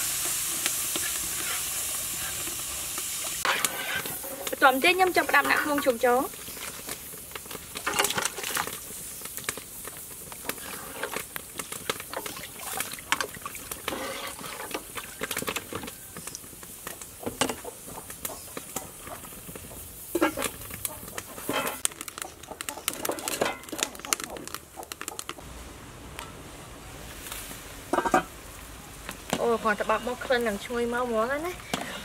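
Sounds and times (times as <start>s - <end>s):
animal calls: 22.2s - 25.4s.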